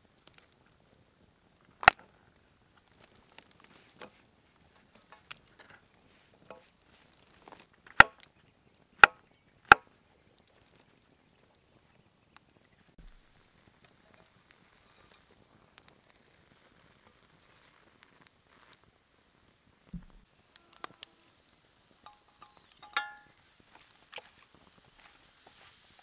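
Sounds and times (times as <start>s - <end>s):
wood chopping strikes: 7.9s - 8.3s, 9.0s - 9.9s, 19.9s - 20.2s
light wooden taps and knocks: 19.9s - 20.2s.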